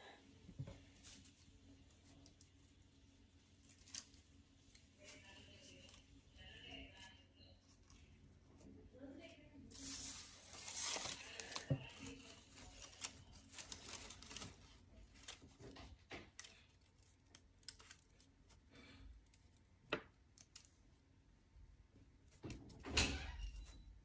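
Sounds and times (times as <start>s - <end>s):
paper rustling and crinkling: 9.6s - 19.5s.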